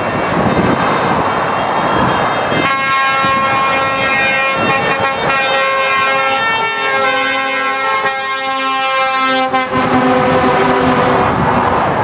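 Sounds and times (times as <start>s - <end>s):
passing trucks: 0.0s - 12.0s
lorry air horns chord: 2.6s - 11.3s.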